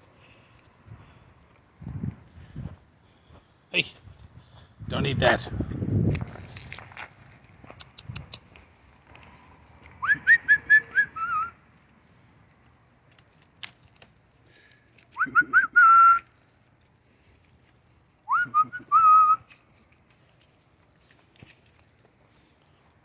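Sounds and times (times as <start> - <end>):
person whistling: 10.0 - 11.5, 15.2 - 16.3, 18.3 - 19.5.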